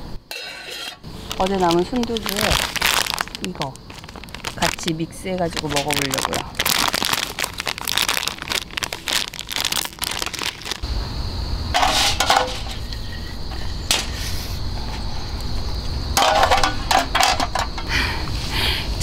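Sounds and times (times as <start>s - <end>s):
plastic packet crinkling: 1.1s - 10.8s.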